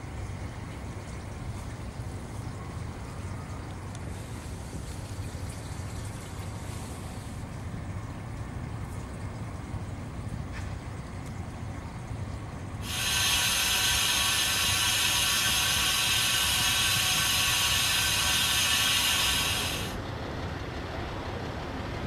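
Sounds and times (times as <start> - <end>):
nitrogen gas venting hiss: 12.8 - 20.0.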